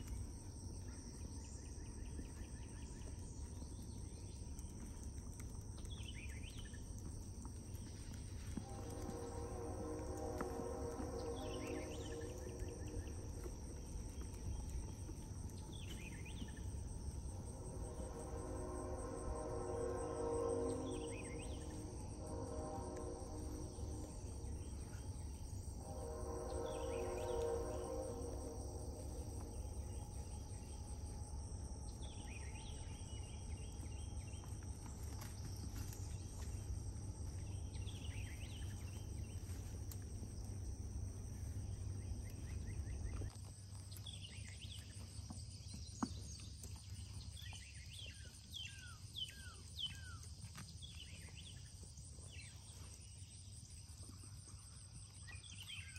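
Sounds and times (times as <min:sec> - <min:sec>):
high insect drone: 0:00.0 - 0:55.9
low rumble: 0:00.1 - 0:43.3.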